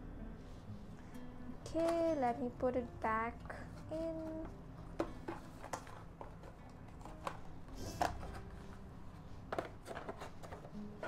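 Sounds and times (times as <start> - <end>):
packaging rustling: 4.1 - 11.0.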